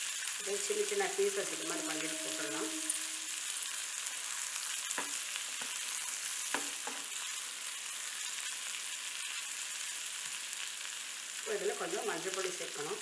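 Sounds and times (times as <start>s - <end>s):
food sizzling in hot oil: 0.0s - 13.0s
spatula scraping pan: 1.2s - 3.7s.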